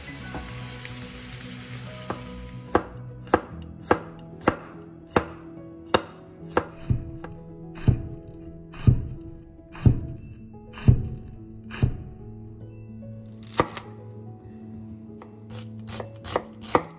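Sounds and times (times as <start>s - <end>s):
food sizzling: 0.0s - 4.6s
knife chopping on wooden board: 2.1s - 8.1s, 13.4s - 13.9s, 15.2s - 16.9s.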